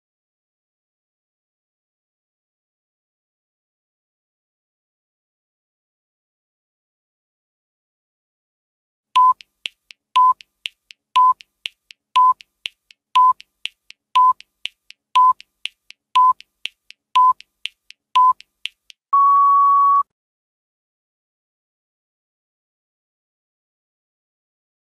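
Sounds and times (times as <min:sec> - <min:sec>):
electronic countdown beeps: 0:09.2 - 0:17.6, 0:18.2 - 0:18.5, 0:19.1 - 0:20.1
long higher beep: 0:19.1 - 0:20.1.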